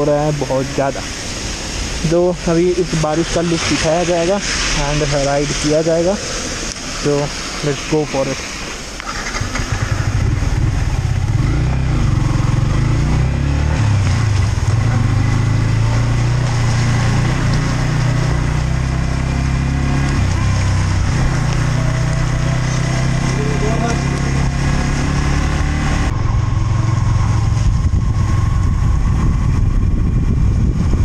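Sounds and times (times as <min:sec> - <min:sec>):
heavy rain: 0:00.0 - 0:29.1
wind: 0:00.0 - 0:31.0
motorcycle engine changing gear: 0:09.0 - 0:12.7.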